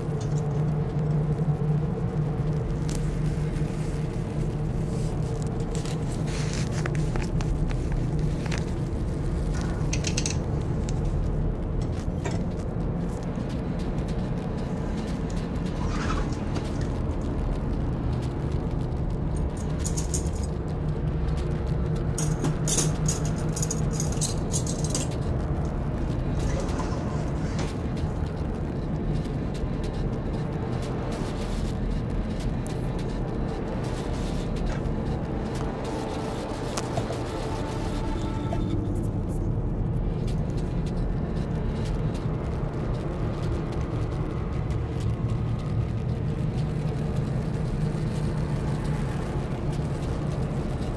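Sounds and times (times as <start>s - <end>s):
steady low hum: 0.0s - 50.9s
metal utensils clattering: 9.6s - 10.4s, 22.2s - 25.2s.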